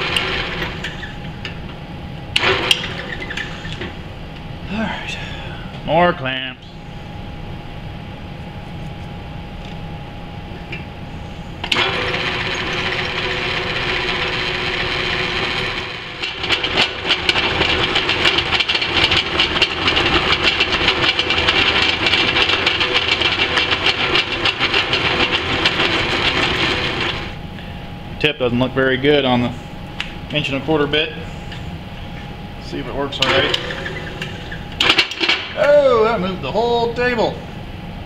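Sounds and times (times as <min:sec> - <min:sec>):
drill press drilling steel: 0:00.0 - 0:01.0, 0:11.6 - 0:27.4.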